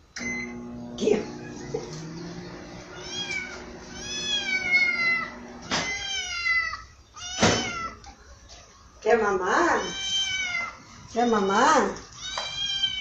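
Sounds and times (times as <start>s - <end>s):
kitten meowing: 2.9s - 8.0s.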